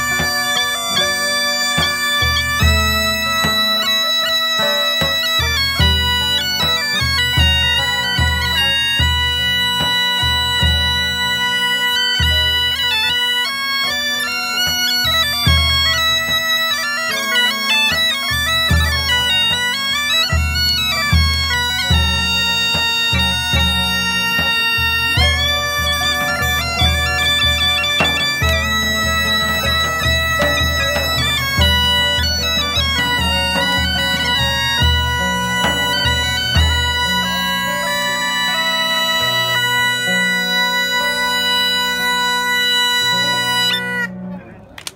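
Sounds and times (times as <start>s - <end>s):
regular drumbeat: 0.0s - 40.3s
bagpipe melody over drone: 0.0s - 44.6s
frame drums beating low thuds: 20.3s - 37.6s.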